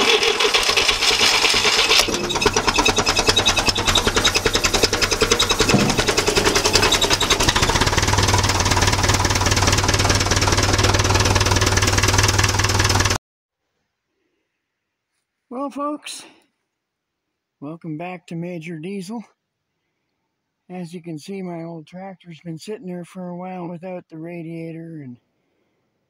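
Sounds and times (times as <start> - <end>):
tractor engine running: 0.0 - 13.2.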